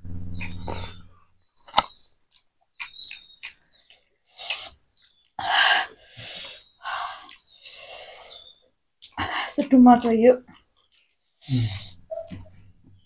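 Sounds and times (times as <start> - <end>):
wet mouth clicks and smacks: 1.7 - 5.4.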